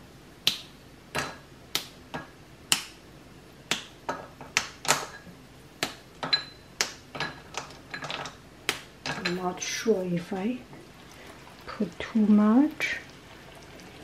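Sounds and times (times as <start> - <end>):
caramel popping in covered pan: 0.4 - 9.7.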